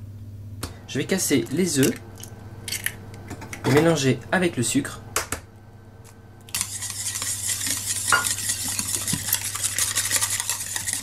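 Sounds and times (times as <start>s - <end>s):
whisk beating eggs in a bowl: 6.6s - 11.0s.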